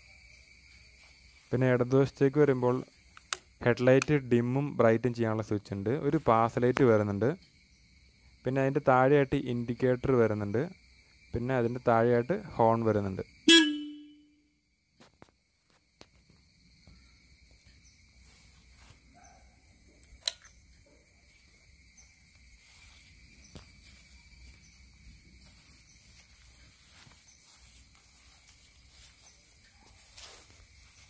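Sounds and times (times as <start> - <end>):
handling ticks: 2.9 - 4.2, 19.2 - 21.0
high-pitched insect trilling: 4.6 - 31.0
sharp click: 20.0 - 20.6.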